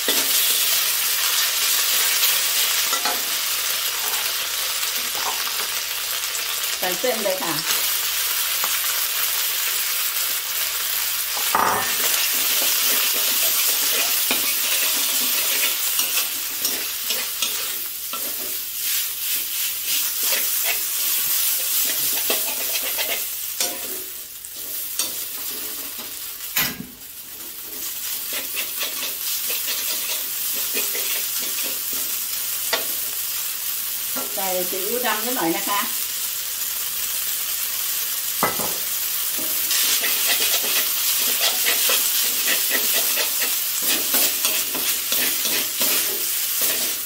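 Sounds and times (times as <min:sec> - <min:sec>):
food sizzling in a wok: 0:00.0 - 0:47.0
scraping in a wok: 0:11.4 - 0:26.3, 0:27.3 - 0:33.2, 0:39.2 - 0:47.0.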